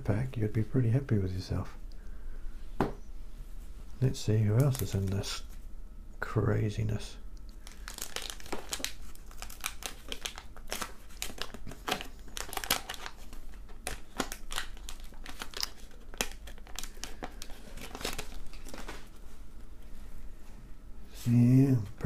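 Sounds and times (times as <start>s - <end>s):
paper wrapper crinkling and tearing: 4.6s - 5.4s, 7.6s - 19.2s.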